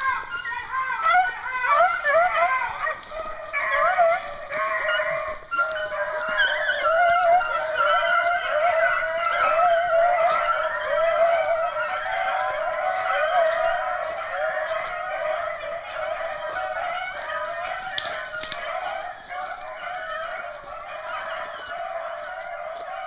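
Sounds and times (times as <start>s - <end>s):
hounds baying: 0.0s - 23.0s.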